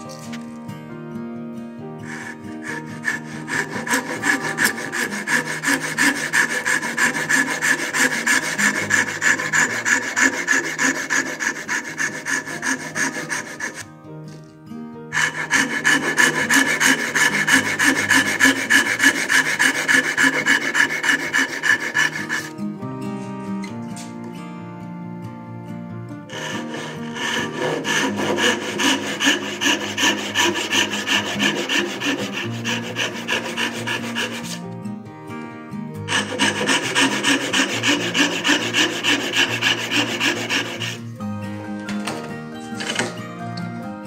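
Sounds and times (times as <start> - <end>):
soft background music: 0.0 - 44.0
hand saw cutting wood: 2.0 - 13.9, 15.1 - 24.2, 26.3 - 34.7, 36.0 - 41.1, 42.8 - 43.2.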